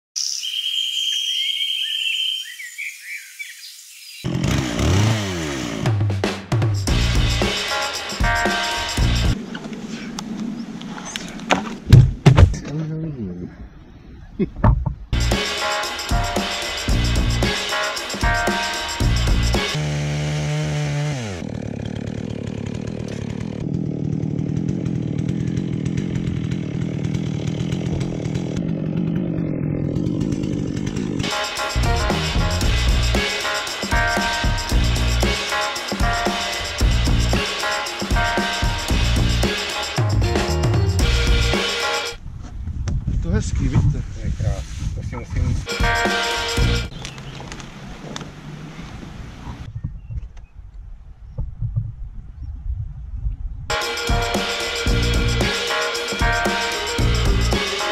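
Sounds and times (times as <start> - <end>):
bird trill: 0.2 - 4.3
birds chirping: 0.2 - 4.3, 9.4 - 15.1, 45.2 - 51.5
chainsaw running: 4.2 - 9.4, 15.2 - 42.2, 45.7 - 46.9, 53.7 - 57.9
music with drum beat and bass: 5.8 - 9.4, 14.7 - 19.8, 31.2 - 42.2, 45.6 - 47.0, 53.7 - 57.9.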